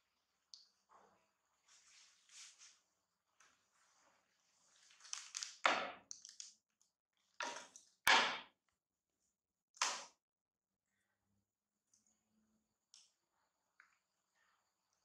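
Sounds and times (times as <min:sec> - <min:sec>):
plastic wrapper crinkling: 0:04.9 - 0:06.6.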